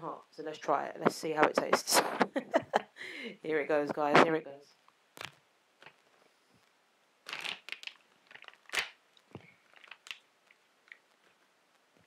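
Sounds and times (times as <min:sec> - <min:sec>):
plastic pouch crinkling: 0:05.2 - 0:06.2, 0:07.2 - 0:11.8
plastic pouch snap: 0:07.3 - 0:11.1.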